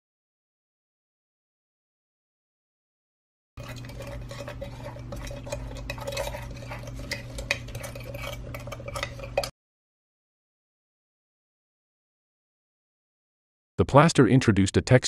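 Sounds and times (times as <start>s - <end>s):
utensil stirring paste: 3.6s - 9.5s.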